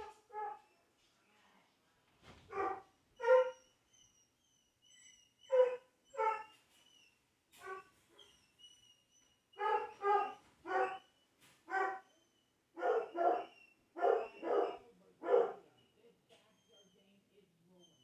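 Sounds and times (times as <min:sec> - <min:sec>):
dog barking: 0:00.0 - 0:00.7, 0:02.5 - 0:03.6, 0:05.5 - 0:06.5, 0:09.6 - 0:11.1, 0:11.7 - 0:12.1, 0:12.8 - 0:15.7.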